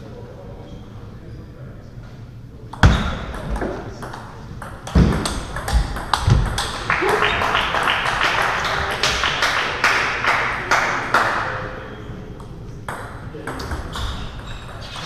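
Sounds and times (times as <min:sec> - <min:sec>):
table tennis balls clicking: 0:02.8 - 0:09.2.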